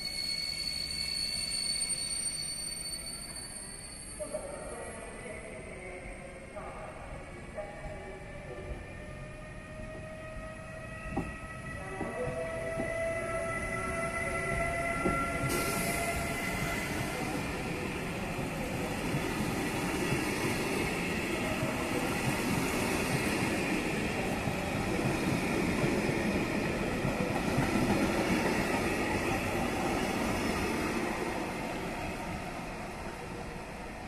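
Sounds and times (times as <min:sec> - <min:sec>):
electric locomotive whine: 0:00.0 - 0:34.0
train wheels rumbling on rail: 0:09.7 - 0:33.6.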